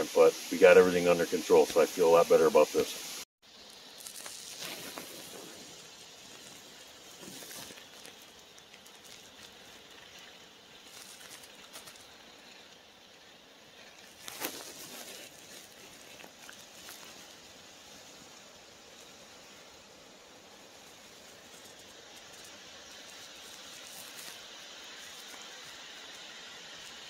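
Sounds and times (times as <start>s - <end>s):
rustling in dry leaves: 0.0s - 27.0s.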